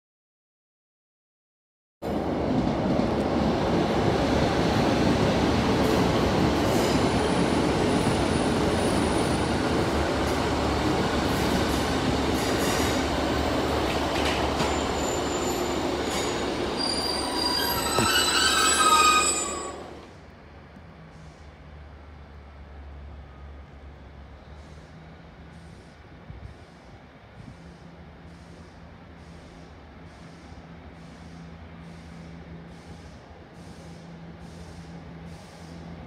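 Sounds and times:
train engine and wheels rumble: 2.0s - 36.0s
high-pitched wheel squealing: 14.6s - 20.0s.

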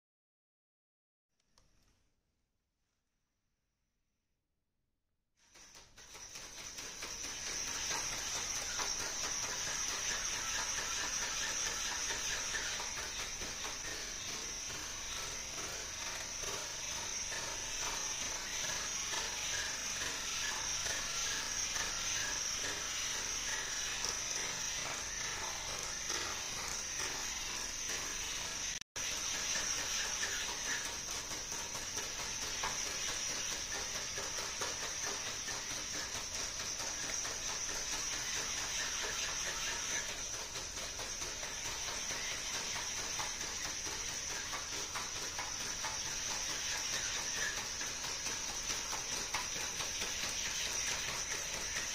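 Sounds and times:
servo motors whining: 6.8s - 31.0s.

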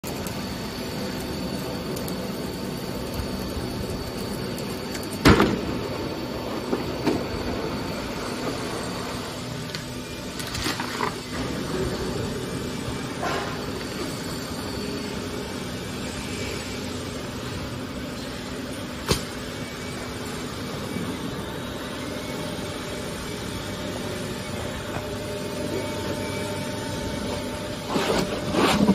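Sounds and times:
machine humming: 0.0s - 28.9s.

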